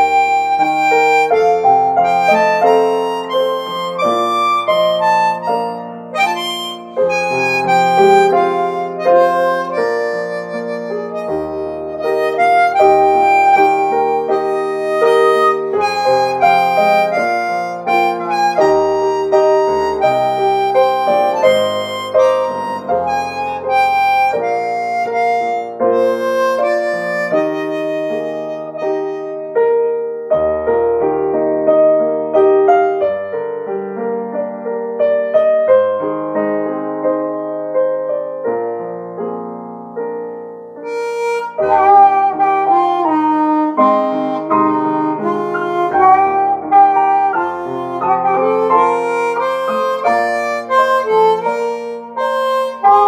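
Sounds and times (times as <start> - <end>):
harmonica playing hymn tune: 0.0 - 29.7, 40.8 - 53.0.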